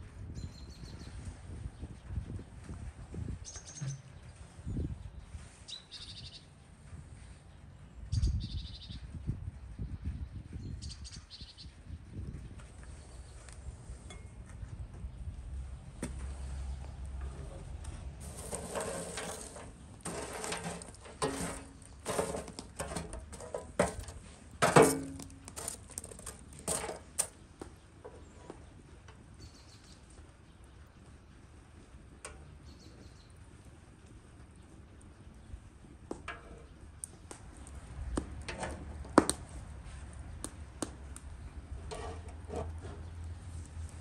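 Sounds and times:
skewers scraping on metal: 0:16.1 - 0:27.4, 0:38.4 - 0:39.3, 0:41.7 - 0:43.7
tongs stirring charcoal: 0:16.2 - 0:29.2, 0:36.1 - 0:44.0
charcoal clinking and crunching: 0:17.1 - 0:27.4.

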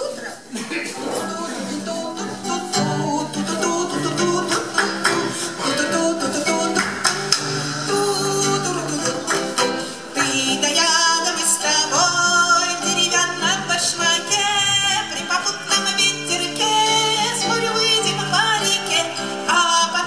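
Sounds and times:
acoustic guitar melody: 0:00.0 - 0:20.0
light percussion quick beat: 0:04.5 - 0:11.1.

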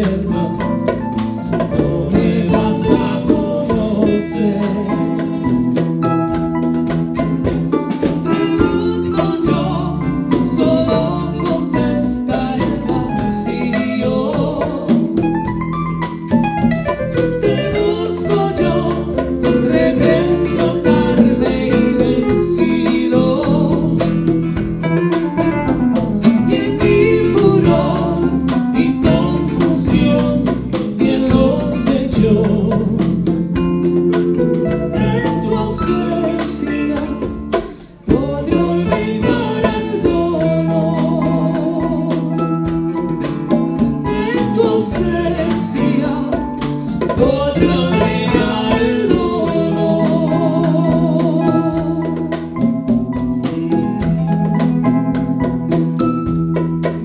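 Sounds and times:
woman singing: 0:00.0 - 0:05.8, 0:08.0 - 0:15.3, 0:17.4 - 0:24.4, 0:26.2 - 0:33.6, 0:34.6 - 0:52.6
live band playing: 0:00.0 - 0:57.0.

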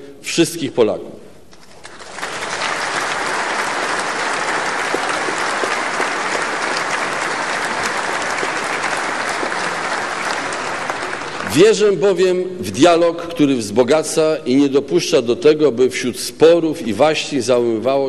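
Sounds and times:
crowd applauding: 0:01.7 - 0:12.0.

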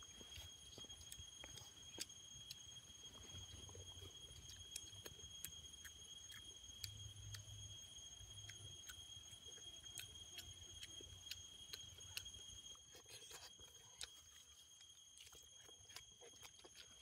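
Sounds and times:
faint chewing with mouth clicks: 0:00.0 - 0:17.0
steady high-pitched whine: 0:00.0 - 0:17.0.

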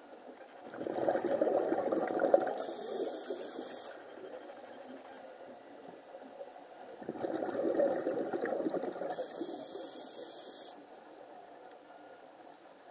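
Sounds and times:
thin high whine: 0:02.5 - 0:07.0, 0:09.0 - 0:11.2
underwater rushing hiss: 0:02.6 - 0:04.0.

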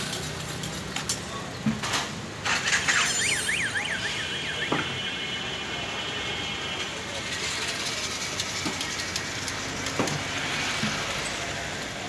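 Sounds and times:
street noise: 0:00.0 - 0:12.0
electronic warbling alarm: 0:02.9 - 0:05.1.

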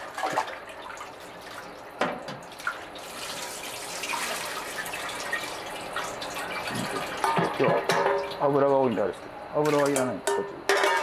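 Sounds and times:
liquid pouring and trickling: 0:00.1 - 0:07.6.

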